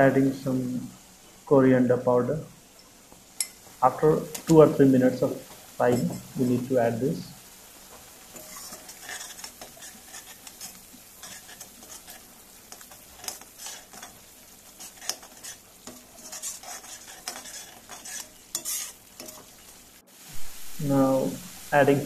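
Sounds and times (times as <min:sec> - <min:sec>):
frying sizzle: 0:00.0 - 0:22.0
metal spatula scraping pan: 0:08.3 - 0:19.6.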